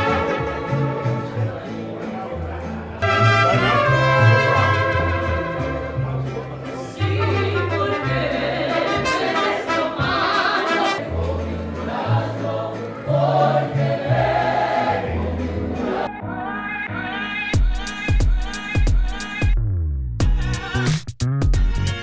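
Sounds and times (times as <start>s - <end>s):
orchestral music with choir: 6.9s - 17.4s.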